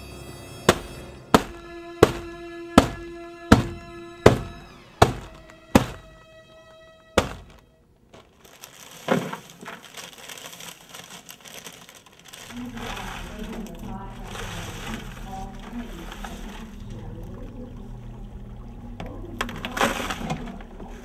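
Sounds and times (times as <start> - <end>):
single thud: 0.7 - 6.3, 7.2 - 7.6
metal pipe striking dry ice: 0.7 - 6.4, 7.2 - 7.6
dry ice chunks crunching: 0.7 - 17.6, 19.4 - 21.0.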